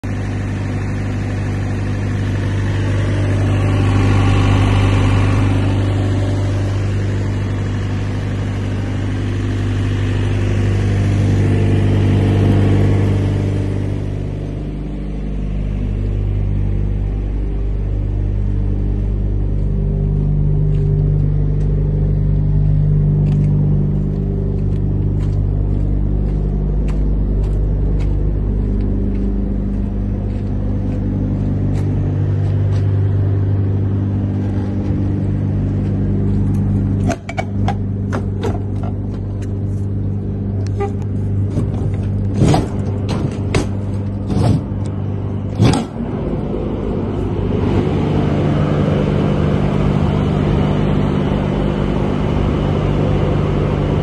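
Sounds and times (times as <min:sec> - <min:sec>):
refrigeration unit engine hum: 0:00.0 - 0:54.0
fan air rushing: 0:29.3 - 0:54.0.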